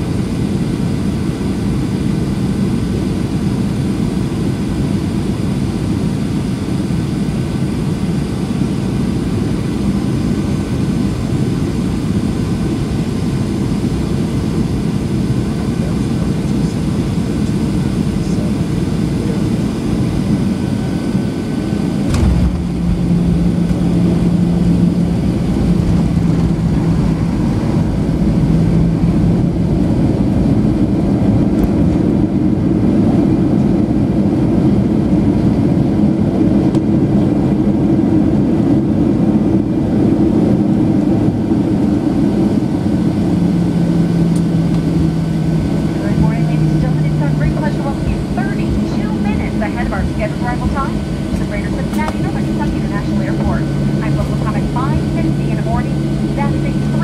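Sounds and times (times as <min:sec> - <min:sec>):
jet engines rumbling: 0:00.0 - 0:57.0
steady hum: 0:09.2 - 0:57.0
rushing air: 0:21.9 - 0:30.4.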